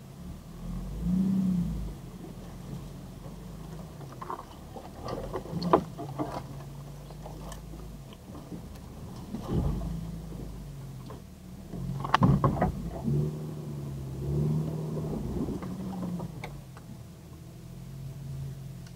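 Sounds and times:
engine running at crawling speed: 0.0 - 18.9
branches scraping against vehicle: 2.2 - 11.2.

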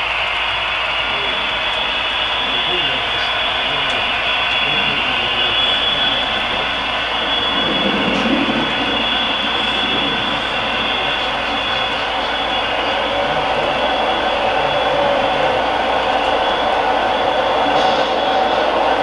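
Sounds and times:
model train running on track: 0.0 - 19.0.

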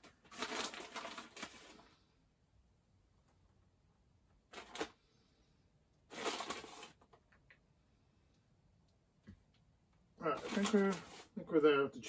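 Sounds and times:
plastic bag crinkling: 0.0 - 2.0, 4.5 - 5.0, 6.1 - 7.3, 10.2 - 11.4.

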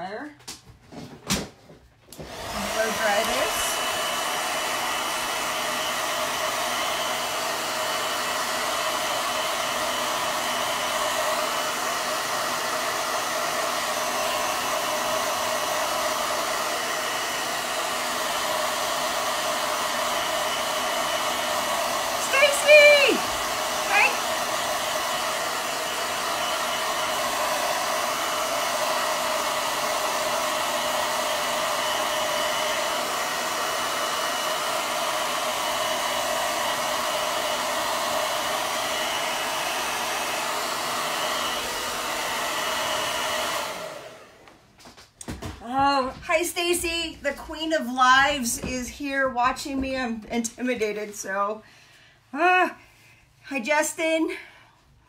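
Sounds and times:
hair dryer running: 2.1 - 51.6.

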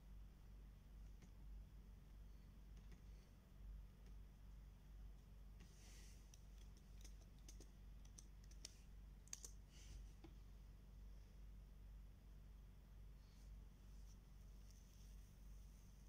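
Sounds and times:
low steady hum: 0.0 - 16.0
mouse clicks: 6.2 - 9.6
keyboard keystrokes: 6.3 - 9.6.

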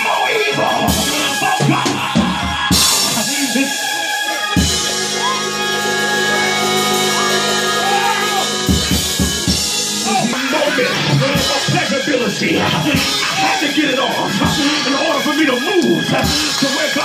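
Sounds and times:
voices calling out: 0.0 - 17.0
drum kit hits: 0.9 - 3.6, 6.8 - 17.0
long held chord: 4.2 - 12.2.

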